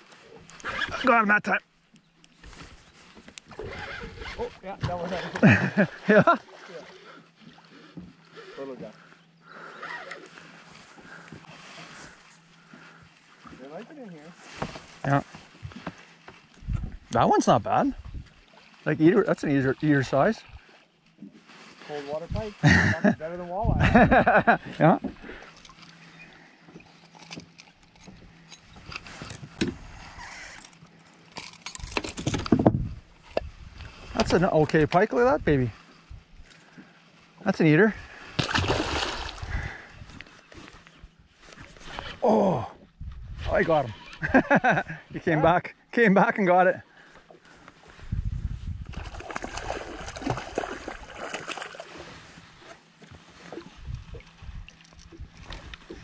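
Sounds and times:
fish splashing and thrashing: 38.1s - 40.8s, 48.8s - 52.4s.

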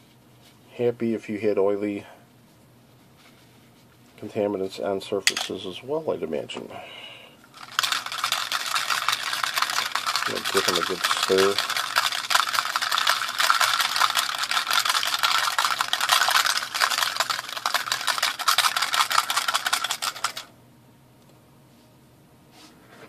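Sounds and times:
metal pieces rattling in plastic tub: 7.6s - 20.5s.

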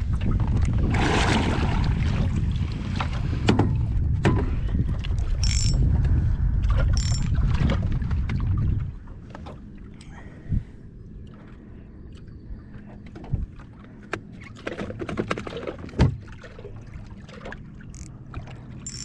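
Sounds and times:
low steady hum: 0.0s - 14.6s
water sloshing against hull: 0.0s - 19.0s
hollow knocks on boat: 3.0s - 4.7s, 14.1s - 16.3s.

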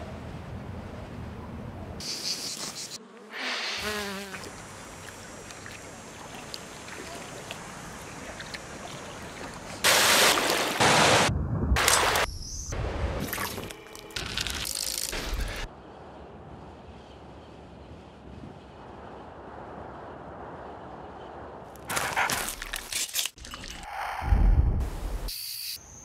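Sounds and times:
steady outdoor hiss: 0.0s - 13.1s
insects buzzing: 2.0s - 9.4s.

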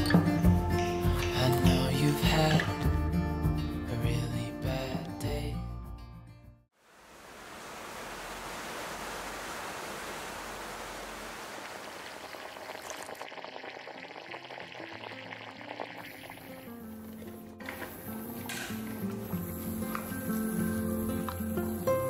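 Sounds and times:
steady rain falling: 6.8s - 12.6s.

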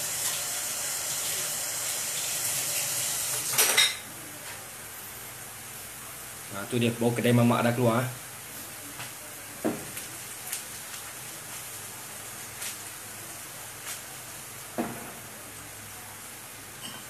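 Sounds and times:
onions sizzling in oil: 0.0s - 3.6s.

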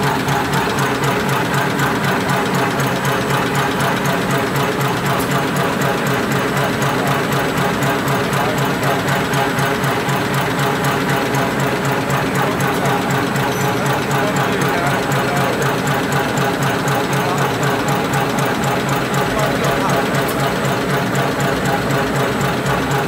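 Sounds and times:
folding machine clattering: 0.0s - 23.0s.

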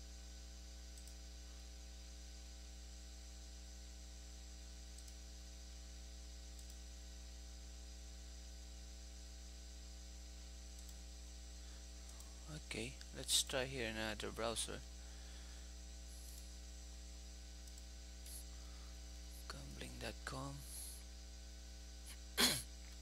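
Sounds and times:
electrical mains hum: 0.0s - 23.0s
faint clicks: 0.9s - 1.2s, 4.9s - 5.2s, 6.5s - 6.8s, 10.8s - 11.0s, 17.6s - 17.9s.

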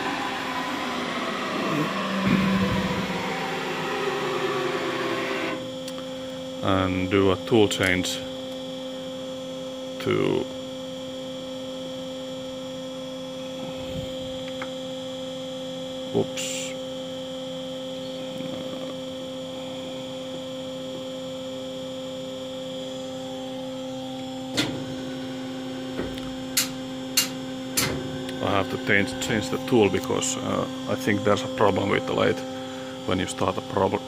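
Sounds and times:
electrical hum of lathe: 0.0s - 6.9s, 16.6s - 34.0s.

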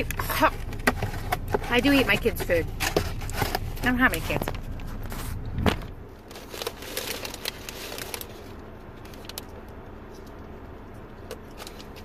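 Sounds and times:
car cabin hum: 0.0s - 12.0s.

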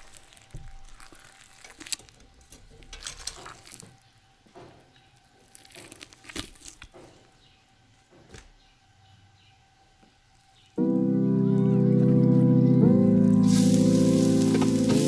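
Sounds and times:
faint clicks and rustles: 0.0s - 7.2s.

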